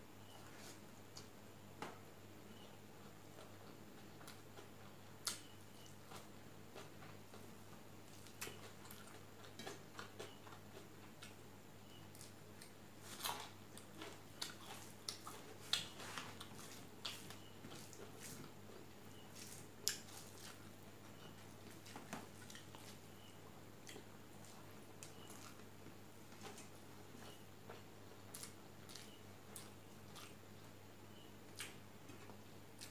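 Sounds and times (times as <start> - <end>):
faint low hum: 0.0 - 32.9
wet chewing smacks: 28.3 - 30.4.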